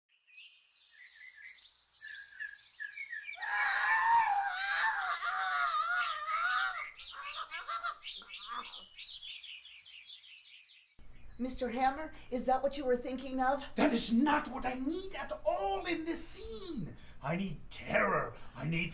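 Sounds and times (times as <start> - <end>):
birds chirping: 0.1 - 12.7
high wavering vocal howl: 3.4 - 7.9.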